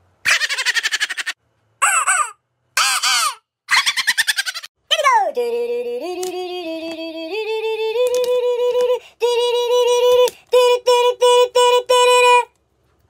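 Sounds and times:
high singing voice: 4.8 - 12.6.

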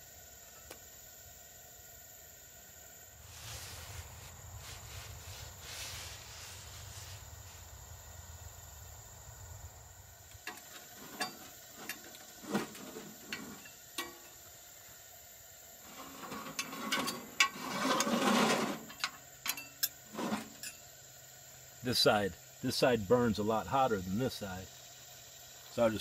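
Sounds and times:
metal clicks from griddle and utensils: 10.4 - 14.4, 18.9 - 20.8
griddle scraping and clanking: 10.4 - 14.5, 15.8 - 20.9.

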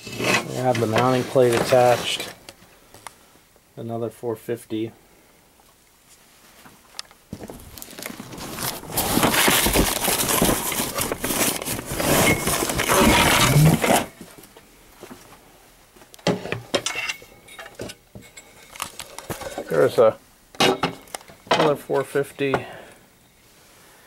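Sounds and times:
plastic bag crinkling: 7.3 - 14.2.

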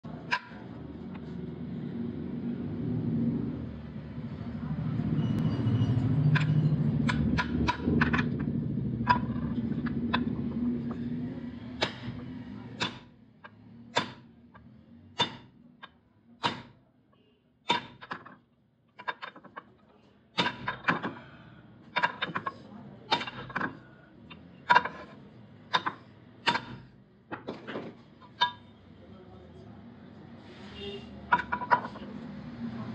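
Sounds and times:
hammer striking steel: 11.8 - 13.1, 13.9 - 14.3, 15.2 - 15.5, 16.4 - 16.8, 17.7 - 18.3, 20.4 - 20.9, 25.7 - 26.9.

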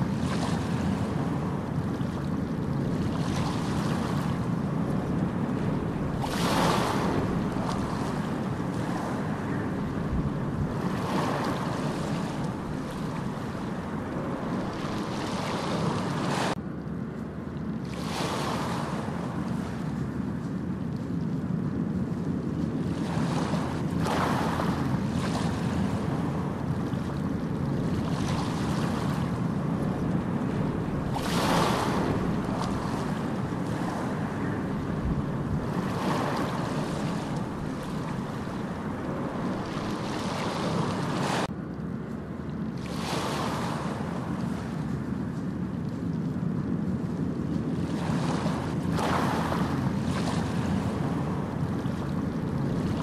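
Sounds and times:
steady rushing noise: 0.0 - 16.6, 18.0 - 41.6.

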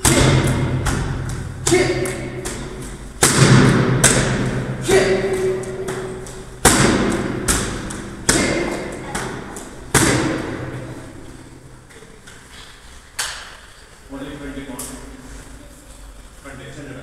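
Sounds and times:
kicks smacking a kick pad: 0.0 - 10.9.

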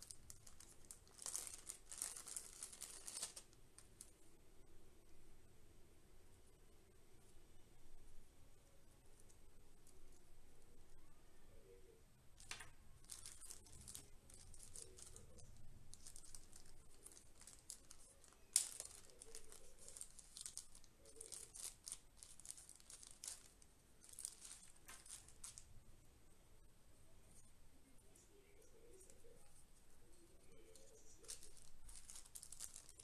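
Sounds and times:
plastic bags crinkling: 0.0 - 4.1, 12.4 - 25.7, 30.6 - 33.0.

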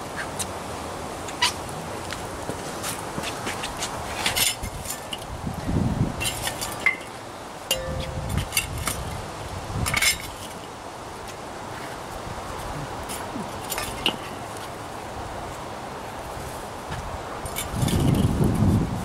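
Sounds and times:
charcoal briquettes clinking: 6.3 - 9.0.

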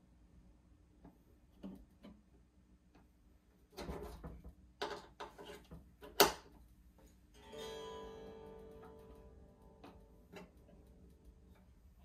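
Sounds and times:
amplifier crackling: 6.0 - 12.0
guitar chord ringing: 7.4 - 11.7.

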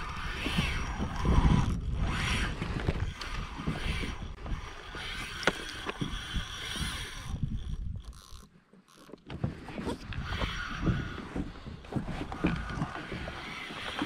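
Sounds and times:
wind on microphone: 0.0 - 8.4, 9.4 - 14.0.

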